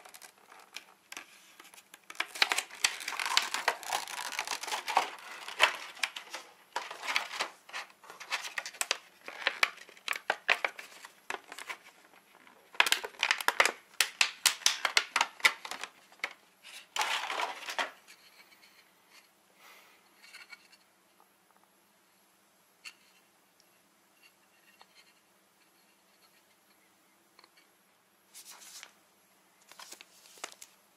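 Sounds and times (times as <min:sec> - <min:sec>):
plastic packaging crinkling: 0:00.0 - 0:18.0, 0:29.6 - 0:30.8.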